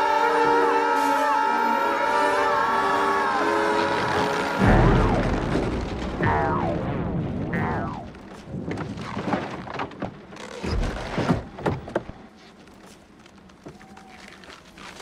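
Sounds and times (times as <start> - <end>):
heavy low boom: 4.6 - 8.3
falling pitch sound effects: 6.2 - 8.1.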